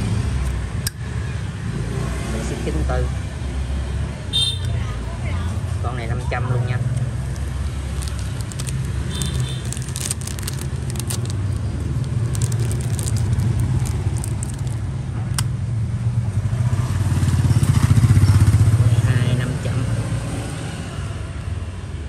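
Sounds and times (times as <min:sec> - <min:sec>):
vehicle engine rumbling: 0:04.8 - 0:19.4
light clicks and rattles: 0:07.3 - 0:15.5.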